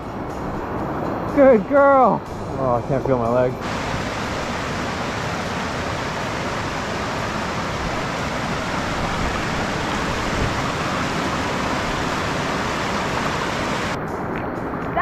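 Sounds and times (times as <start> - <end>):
river rushing over rocks: 3.6 - 14.0.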